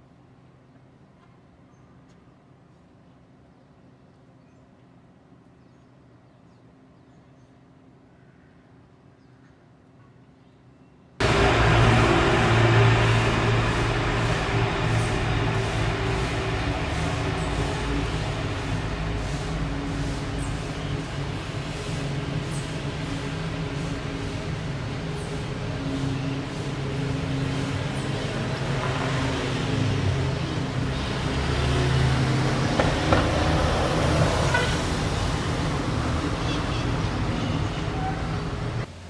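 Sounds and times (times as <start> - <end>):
vehicle engine running: 11.2 - 38.9
road noise: 11.2 - 39.0
traffic rumble: 11.2 - 39.0.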